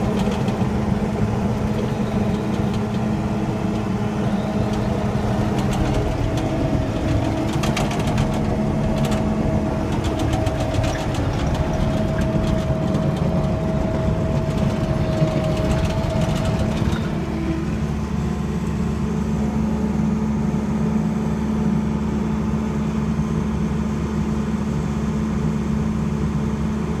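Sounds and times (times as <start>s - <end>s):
diesel engine drone: 0.0s - 27.0s.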